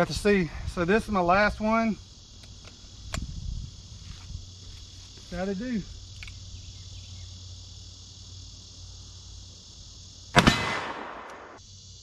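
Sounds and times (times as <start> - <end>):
insects buzzing: 0.0 - 12.0
revolver gunshot: 10.3 - 11.6.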